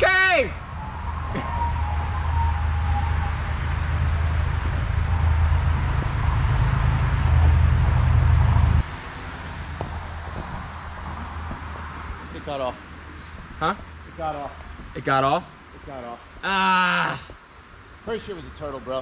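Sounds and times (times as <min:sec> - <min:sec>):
loud low rumble: 0:00.0 - 0:12.6
insects chirping: 0:00.0 - 0:19.0.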